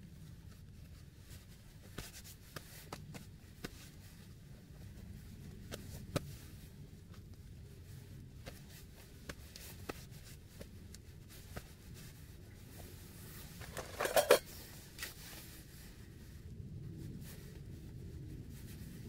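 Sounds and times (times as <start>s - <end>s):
light handling clicks and rustles: 0.2s - 16.6s
knife scraping and clattering: 13.6s - 14.5s.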